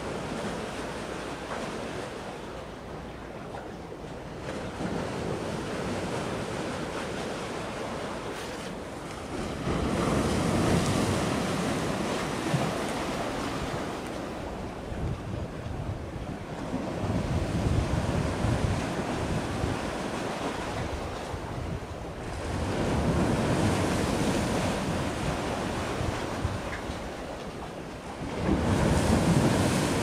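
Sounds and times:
sea noise: 0.0s - 30.0s
rushing wind: 9.3s - 27.2s
wind buffeting microphone: 9.3s - 27.4s.

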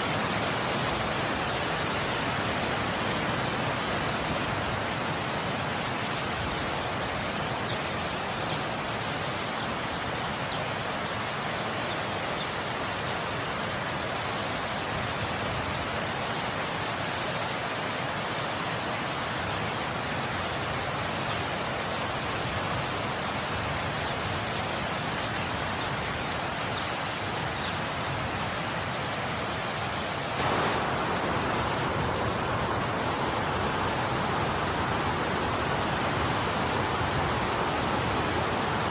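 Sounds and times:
snowstorm wind rushing: 30.3s - 38.9s.

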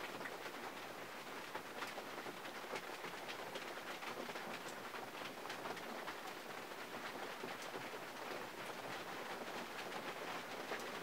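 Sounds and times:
rain on car body: 0.0s - 11.0s.

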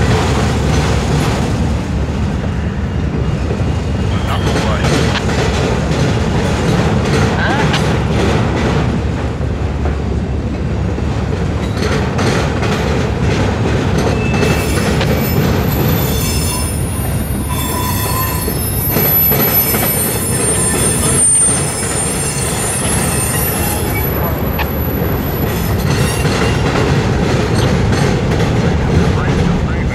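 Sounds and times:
train wheels rumbling on rail: 0.0s - 29.9s
wheel flanges squealing: 14.0s - 26.7s.

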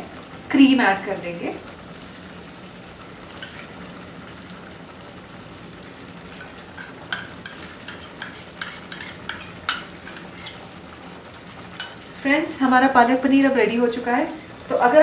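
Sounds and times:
gravy simmering with low sizzle: 0.0s - 15.0s
spoon tapping against pan: 6.8s - 10.6s, 11.8s - 12.0s.

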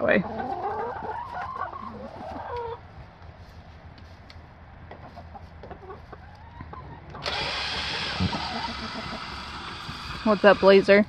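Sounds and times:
hens clucking softly: 0.0s - 3.0s, 4.9s - 10.8s
loud steady noise: 7.2s - 11.0s.

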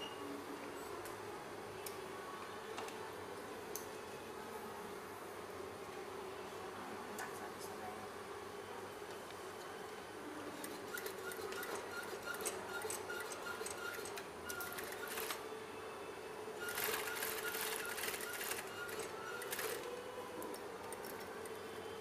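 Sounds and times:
sewing machine stitching: 16.6s - 19.9s.

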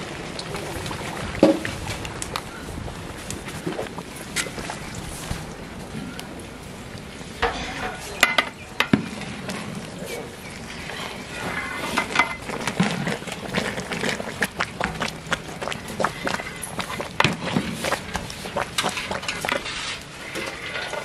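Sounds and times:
ladle stirring rice: 7.7s - 21.0s
metal ladle scraping a pot: 15.9s - 21.0s.

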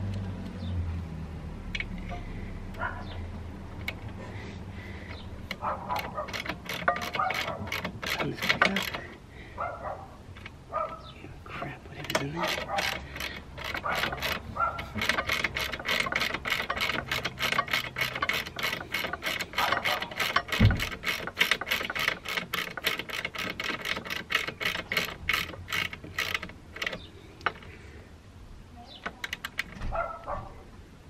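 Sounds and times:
hand ratchet clicking: 3.7s - 4.3s, 5.0s - 9.2s, 10.3s - 27.8s, 29.1s - 29.8s.

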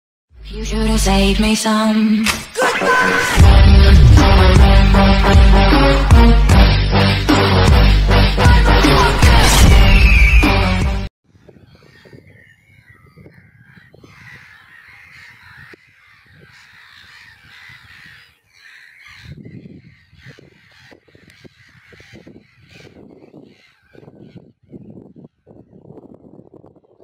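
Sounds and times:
birds calling: 11.2s - 26.4s.

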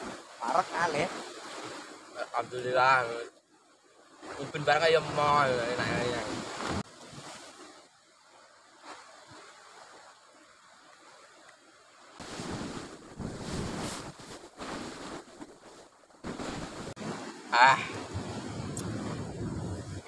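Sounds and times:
surf washing against rocky shore: 0.0s - 3.0s, 4.2s - 7.8s, 12.2s - 20.0s
wind gusting on microphone: 4.3s - 6.8s, 12.2s - 15.5s, 16.2s - 20.0s.

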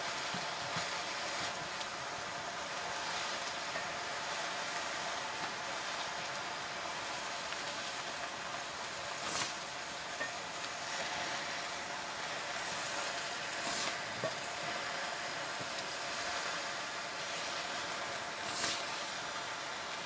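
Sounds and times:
vegetables sizzling in a pan: 0.0s - 20.0s
spatula swishes: 18.4s - 18.9s.

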